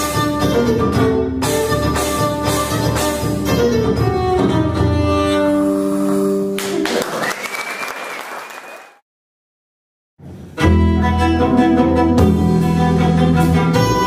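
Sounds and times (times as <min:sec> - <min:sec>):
violin with double bass and drums: 0:00.0 - 0:06.3, 0:10.6 - 0:14.0
fiddle note: 0:00.0 - 0:06.5, 0:10.6 - 0:14.0
audience applause: 0:06.6 - 0:09.0.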